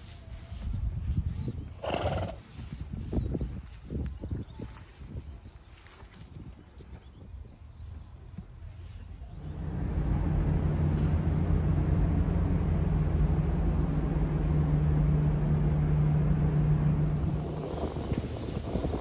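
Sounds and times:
vehicle engine running: 9.3 - 19.0.

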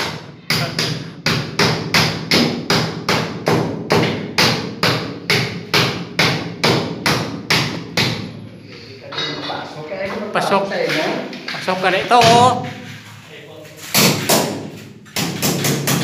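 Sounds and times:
hammer striking sheet metal: 12.0 - 13.1, 13.8 - 16.0.

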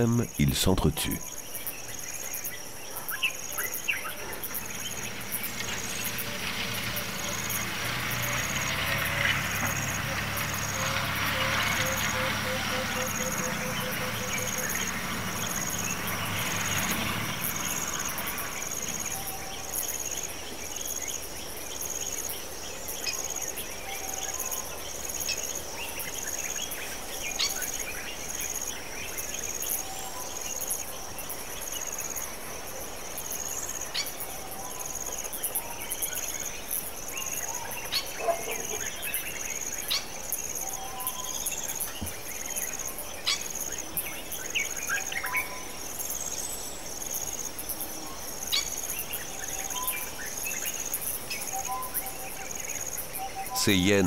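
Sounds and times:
insects chirping: 0.0 - 54.0
vehicle engine: 3.6 - 20.4.

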